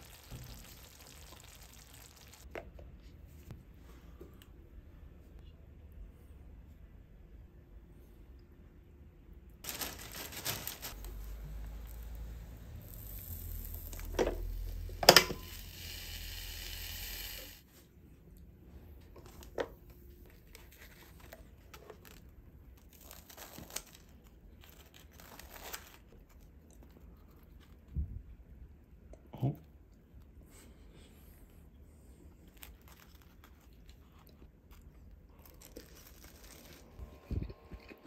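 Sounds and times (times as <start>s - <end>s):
plastic packaging crinkling: 9.6s - 12.2s, 20.3s - 26.5s, 32.5s - 37.0s
low hum: 36.8s - 38.0s.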